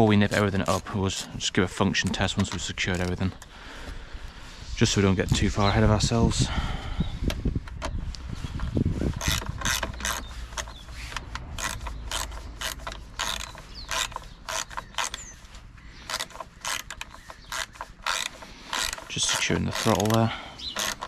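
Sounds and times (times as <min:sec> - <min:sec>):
socket ratchet clicking: 0:09.1 - 0:15.4, 0:16.0 - 0:21.0.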